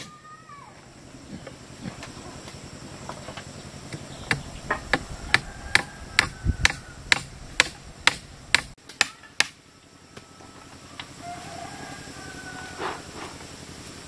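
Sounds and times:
hammer knocking on bamboo: 3.9 - 9.6.

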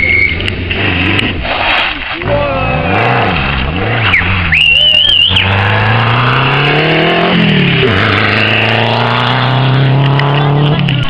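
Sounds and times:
tyre squeal: 0.0 - 0.4, 1.5 - 9.0
rally car accelerating: 0.1 - 11.0.

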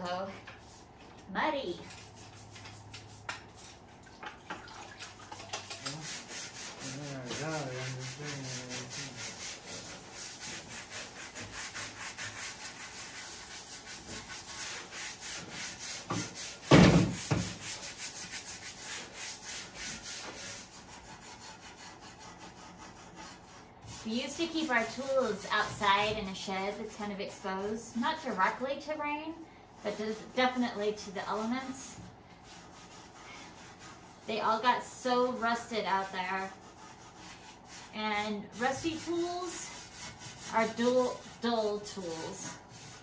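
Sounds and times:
scrub brushes scraping metal: 5.4 - 21.3, 37.4 - 43.0.

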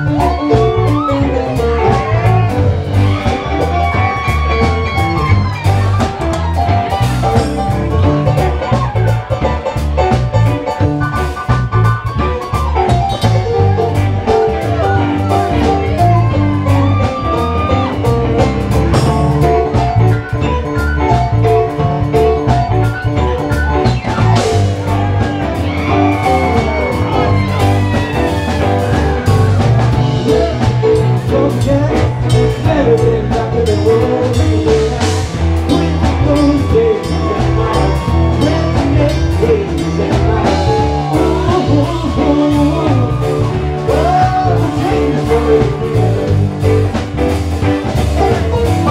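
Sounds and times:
drum kit: 0.0 - 48.9
electric guitar: 0.0 - 48.9
keyboard: 0.0 - 48.9.

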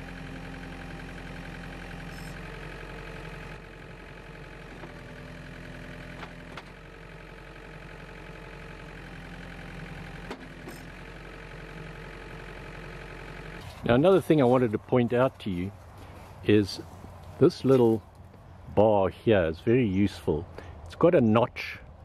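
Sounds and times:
tractor engine running: 0.0 - 22.0
loader hydraulics: 1.8 - 3.4, 9.2 - 11.8.

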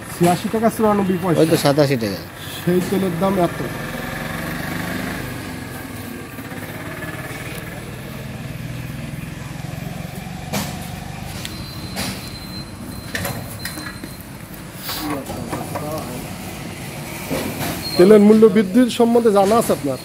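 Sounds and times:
motorcycle engine idling: 2.3 - 11.9.

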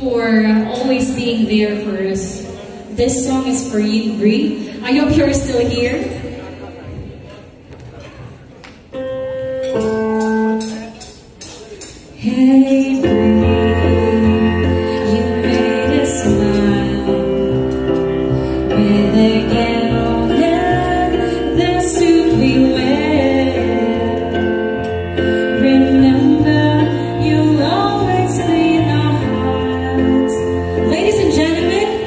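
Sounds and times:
instrumental accompaniment: 8.7 - 32.0
woman singing into microphone: 12.2 - 32.0.

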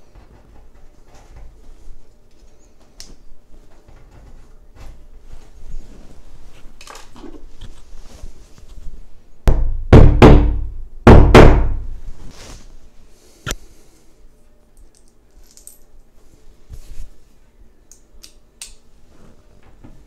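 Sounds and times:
hammer knocking: 9.5 - 11.9.

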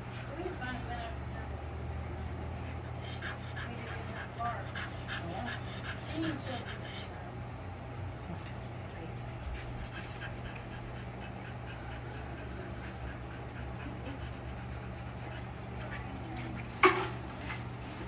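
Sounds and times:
steady low hum: 0.0 - 18.0
dog whining and panting: 2.6 - 7.3, 9.4 - 18.0.

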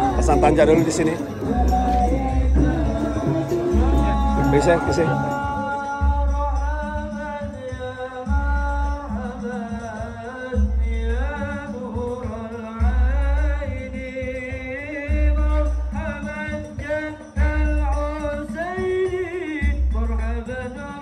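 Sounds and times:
person singing ornamented melody: 0.0 - 6.3.

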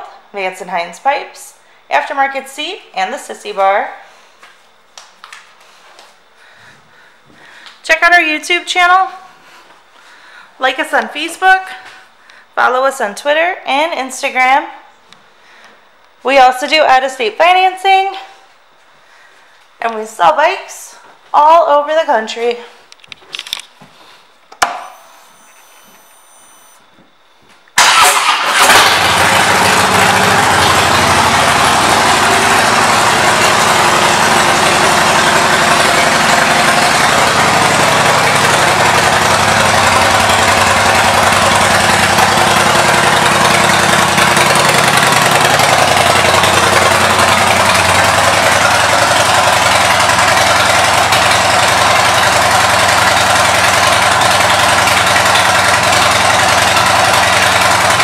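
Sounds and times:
motorcycle engine starting and idling: 24.6 - 26.8, 27.8 - 58.0.

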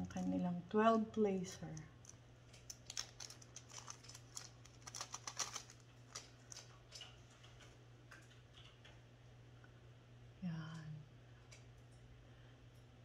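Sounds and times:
low steady hum: 0.0 - 13.0
plastic bag crinkling: 1.6 - 7.4.

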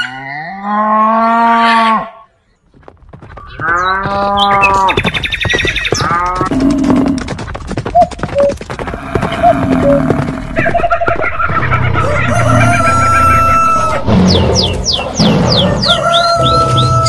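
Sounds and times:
clicks and higher tones: 10.5 - 15.4.

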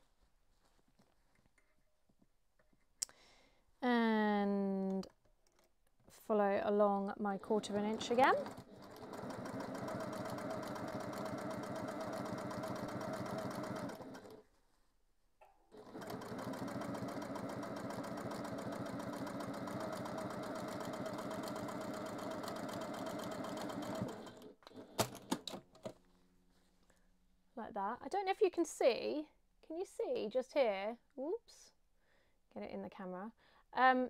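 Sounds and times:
sewing machine stitching: 7.3 - 14.4, 15.8 - 25.9.

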